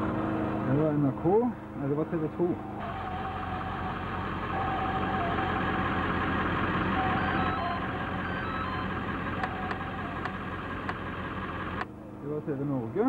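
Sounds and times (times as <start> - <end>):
vehicle engine running: 0.0 - 13.0
short electronic beeps: 7.0 - 10.4.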